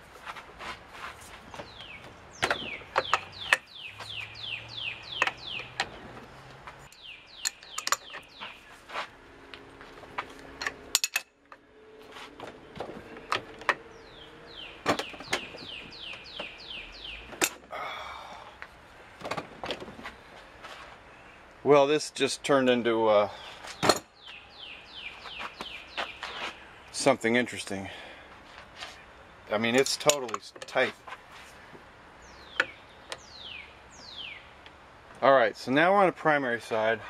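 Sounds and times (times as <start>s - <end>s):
bird chirping: 1.3s - 9.0s, 9.6s - 18.3s, 23.3s - 27.3s, 31.6s - 34.8s
wrench clicking on metal nut: 10.6s - 11.3s.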